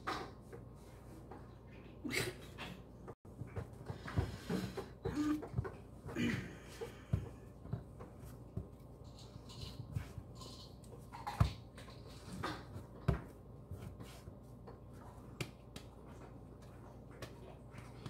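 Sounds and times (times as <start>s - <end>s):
dough thumping on countertop: 12.6s - 14.2s.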